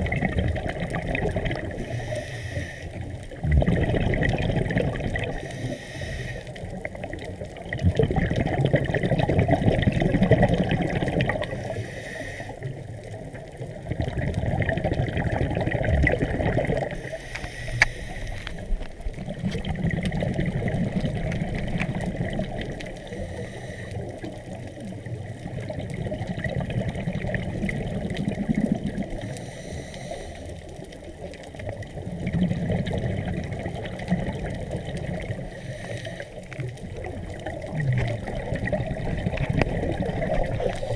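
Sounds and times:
water washing and splashing: 0.0s - 40.9s.

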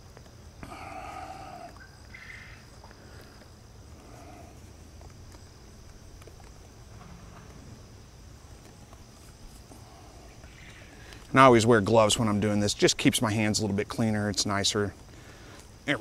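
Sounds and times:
animal call: 0.6s - 4.6s
low rumble: 6.6s - 9.1s.

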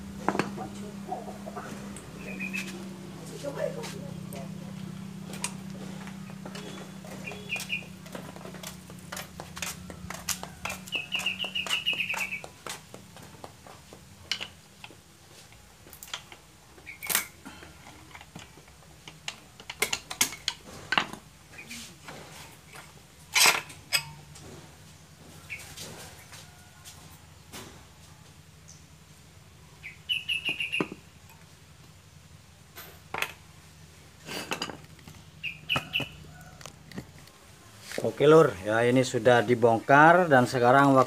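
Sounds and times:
low steady hum: 0.0s - 40.0s
bird chirping: 1.5s - 2.9s, 6.2s - 8.0s, 10.6s - 12.6s, 29.7s - 31.0s, 35.2s - 36.6s.

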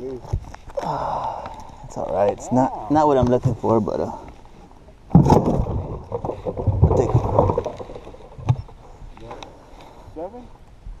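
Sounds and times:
fish thrashing in water: 5.1s - 8.8s.

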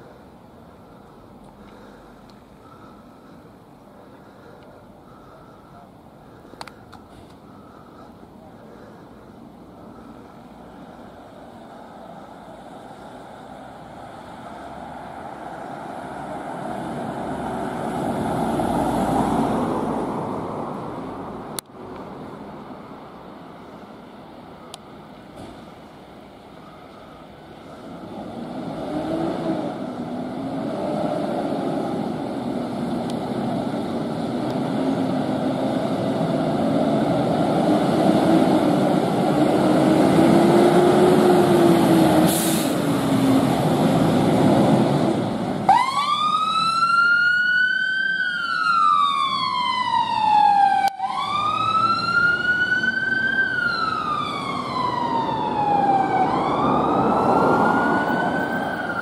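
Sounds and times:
diesel engine accelerating: 27.5s - 47.4s
siren wailing: 45.7s - 59.0s.

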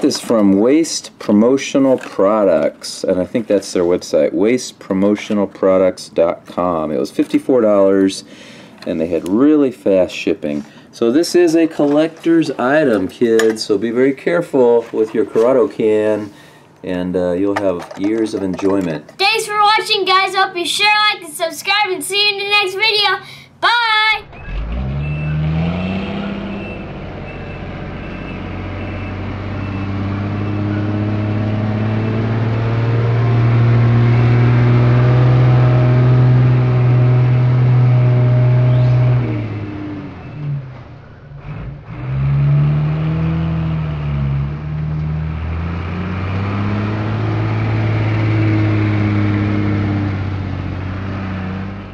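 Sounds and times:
diesel truck engine revving: 24.2s - 51.9s.

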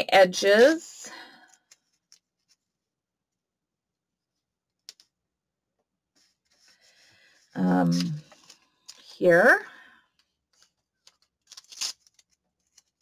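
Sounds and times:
tape and paper rustling: 7.5s - 9.2s, 10.2s - 13.0s.

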